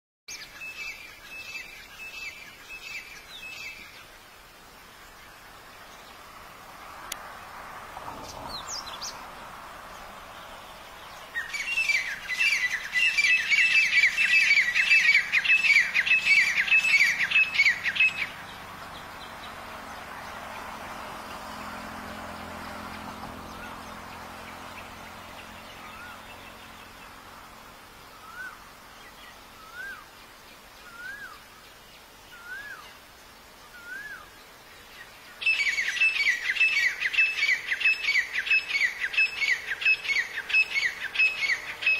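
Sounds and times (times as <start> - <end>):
francolins chattering calls: 9.9 - 20.4, 35.4 - 41.9.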